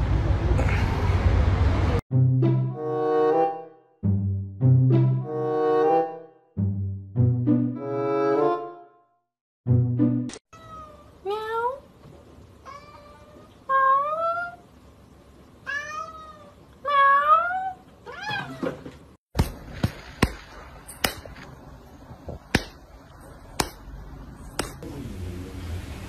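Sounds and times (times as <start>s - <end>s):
cat meowing: 15.7s - 18.7s.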